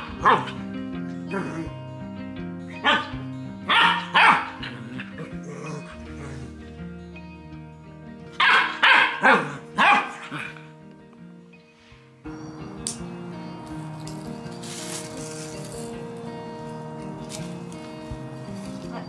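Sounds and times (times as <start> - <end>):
puppy barking in yips: 0.0 - 0.6, 2.8 - 5.2, 8.4 - 10.6
background music: 0.0 - 19.0.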